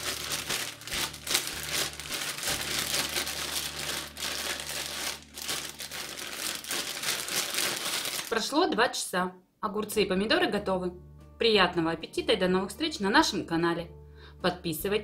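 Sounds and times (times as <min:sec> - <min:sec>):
vegetables shifting in bag: 0:00.0 - 0:08.4
plastic bag crinkling: 0:00.0 - 0:08.6.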